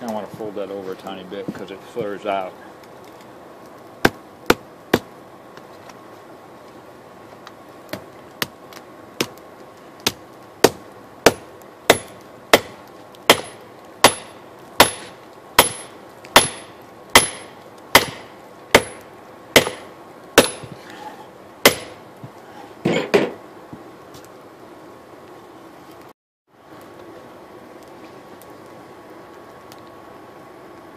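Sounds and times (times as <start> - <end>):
hammer striking hot steel on anvil: 10.1 - 20.8, 21.6 - 22.0.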